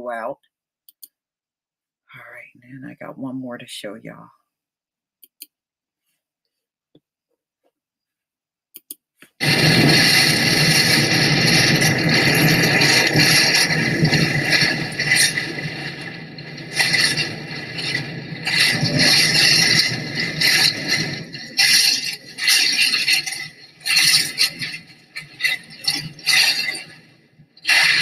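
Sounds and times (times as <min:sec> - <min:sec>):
wind and rain on microphone: 0:09.4 - 0:27.1.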